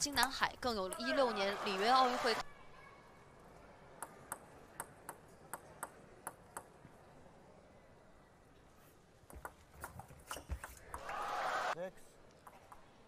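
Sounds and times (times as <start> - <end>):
table tennis ball bouncing: 0.0 - 1.2, 4.0 - 6.8, 9.3 - 11.1.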